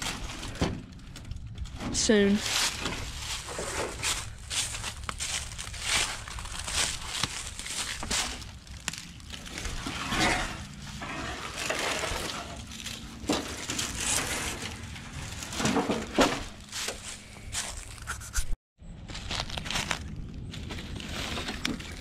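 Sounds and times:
footsteps crunching through dry leaves: 2.0 - 18.2, 19.0 - 22.0.

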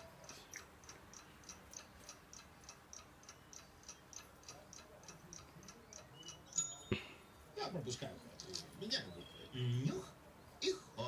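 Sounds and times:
clock ticking: 0.0 - 7.1.

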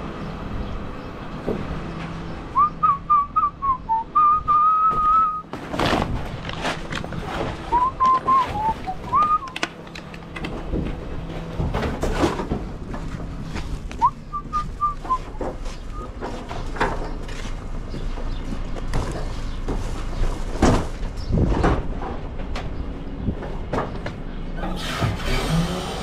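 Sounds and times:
truck engine running: 0.0 - 26.0
man whistling: 2.6 - 5.5, 7.7 - 9.6, 14.0 - 16.1
rustling of bags and cardboard: 2.6 - 22.5.

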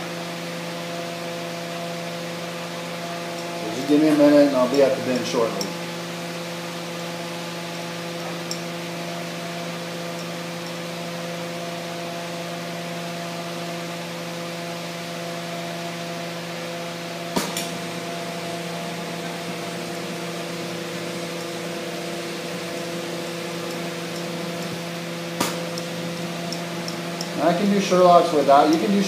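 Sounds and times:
steady hum: 0.0 - 29.0
torch flame hissing: 17.1 - 29.0
sharp click: 17.4 - 17.7, 25.4 - 25.9.

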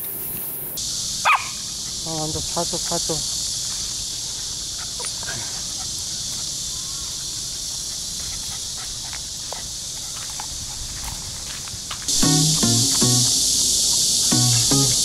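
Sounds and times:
high-pitched insect chorus: 0.0 - 15.0
background music: 12.2 - 13.5, 14.3 - 15.0.

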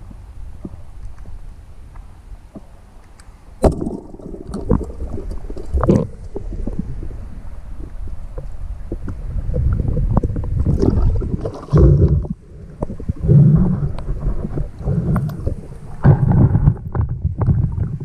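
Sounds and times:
muffled underwater rumbling: 0.0 - 18.0
water sloshing and splashing: 3.6 - 18.0.

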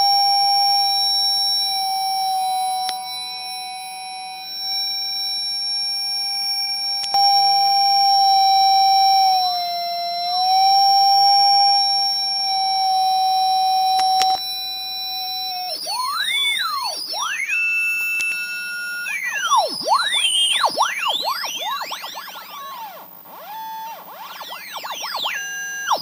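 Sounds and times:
sweeping whistling pitches: 0.0 - 26.0
click: 2.8 - 3.1, 7.0 - 7.4, 13.8 - 14.5, 18.0 - 18.5.

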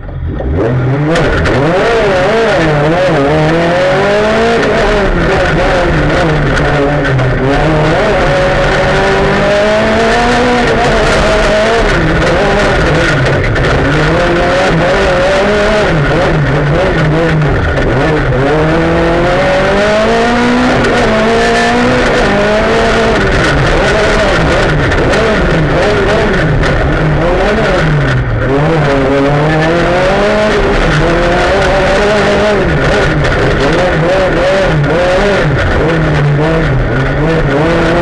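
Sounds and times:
gravel and road noise: 0.0 - 38.0
rally car engine revving: 0.0 - 38.0.

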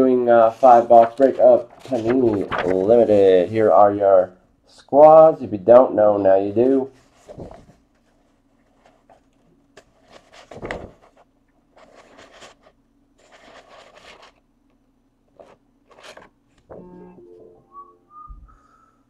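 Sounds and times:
rustling and scraping: 6.9 - 14.4.

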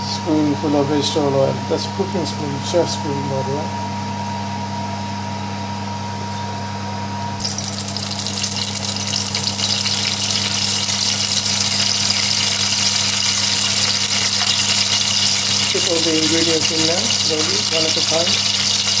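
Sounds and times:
spices sizzling in hot oil: 7.4 - 19.0.

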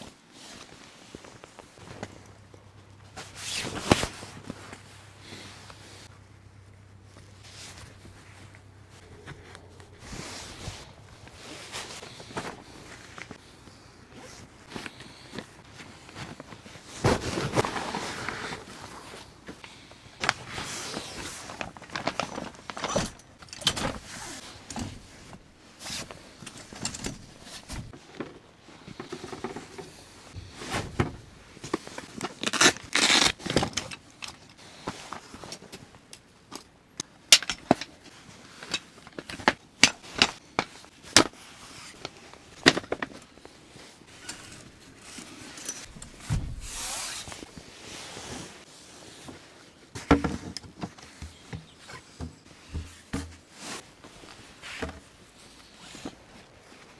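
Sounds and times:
fabric rustling: 7.0 - 19.4.

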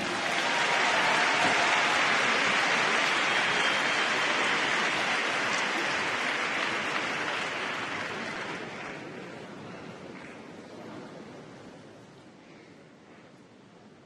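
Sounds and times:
crowd applauding: 0.0 - 9.4.

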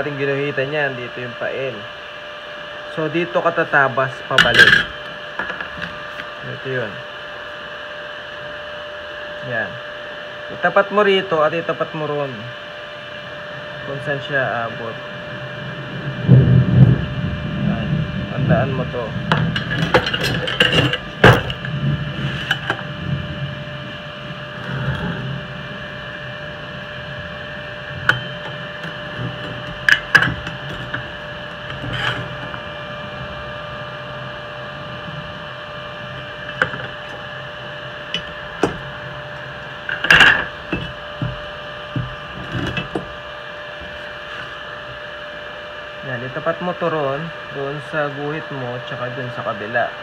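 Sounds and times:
steady hum: 0.0 - 50.0.

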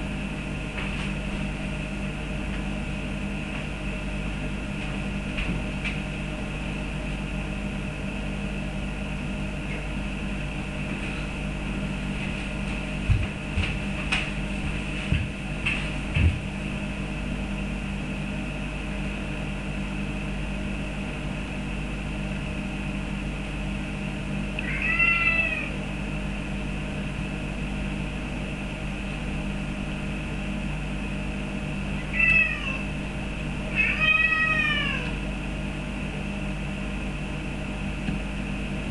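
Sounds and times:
steady low hum: 0.0 - 38.9
cat meowing: 24.6 - 25.8, 32.0 - 32.9, 33.7 - 35.2.

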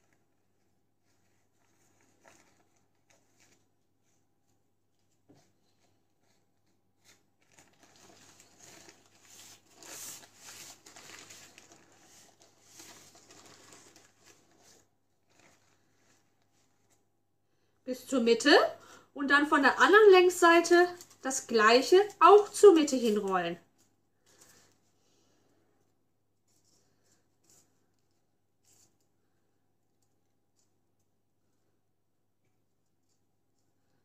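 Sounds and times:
baking paper crinkling: 0.0 - 17.2, 19.9 - 25.2.

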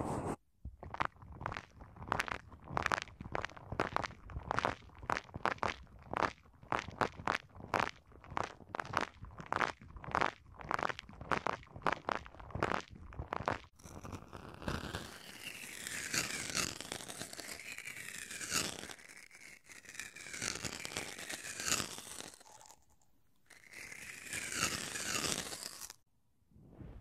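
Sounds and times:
metal tool scraping plastic sheets: 14.0 - 26.0.

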